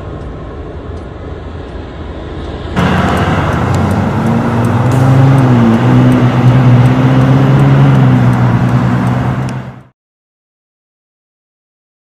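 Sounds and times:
vehicle engine driving past: 2.8s - 9.9s.

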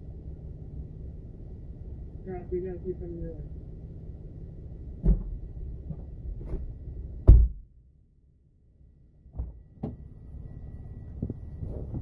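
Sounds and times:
low steady rumble: 0.0s - 12.0s
knocks and thumps in a vehicle: 5.0s - 7.8s, 9.3s - 10.1s, 11.1s - 12.0s.

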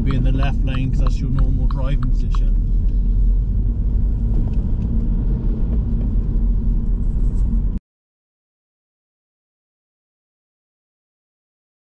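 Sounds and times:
car cabin engine and road rumble: 0.0s - 7.8s.

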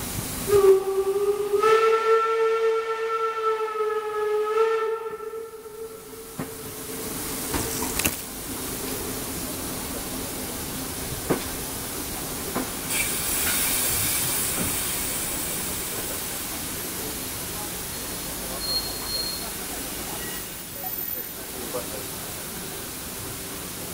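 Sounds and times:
steam locomotive whistle: 0.4s - 7.3s
steam hiss: 6.0s - 23.9s.

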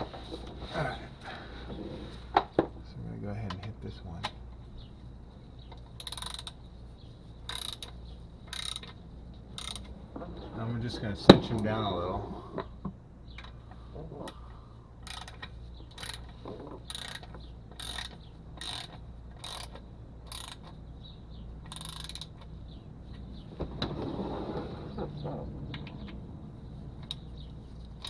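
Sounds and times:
ratchet wrench clicking: 5.8s - 6.6s, 7.5s - 9.9s, 15.0s - 20.8s, 21.6s - 22.5s, 27.0s - 27.3s.

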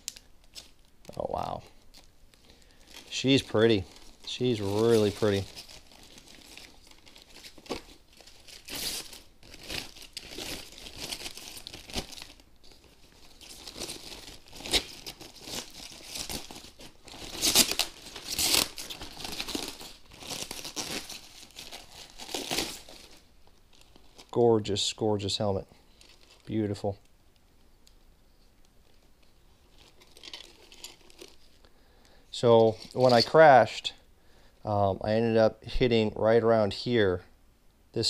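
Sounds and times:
plastic bag crinkling: 0.0s - 24.4s, 25.9s - 26.9s, 28.8s - 31.6s.

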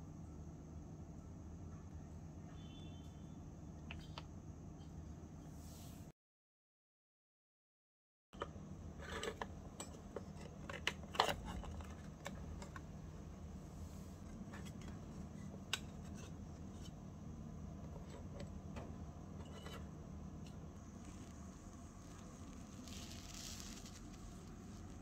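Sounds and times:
steady low hum: 8.4s - 25.0s.

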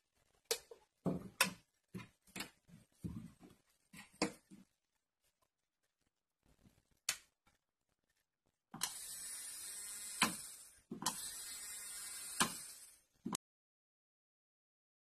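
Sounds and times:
nail drill motor whining: 8.8s - 13.0s.

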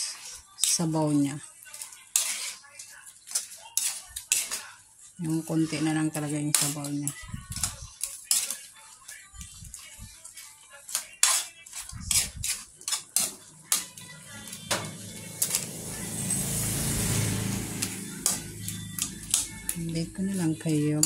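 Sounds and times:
spatula scraping frying pan: 1.7s - 4.7s, 5.8s - 8.7s, 9.7s - 21.0s
background music: 4.8s - 21.0s
sauce sizzling: 12.5s - 20.6s.

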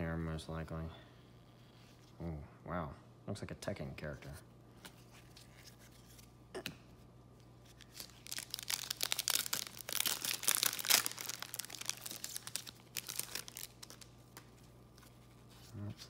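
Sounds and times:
foil wrapper tearing and crinkling: 7.8s - 14.1s.

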